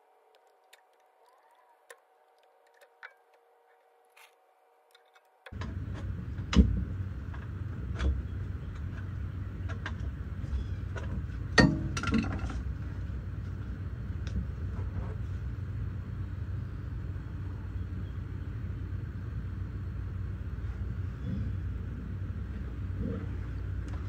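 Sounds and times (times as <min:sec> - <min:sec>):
steady low rumble: 0:05.6 - 0:24.0.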